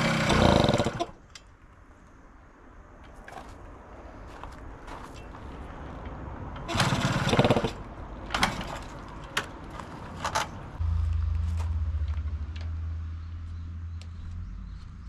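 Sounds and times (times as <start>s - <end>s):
motorcycle engine sputtering: 6.7s - 7.8s.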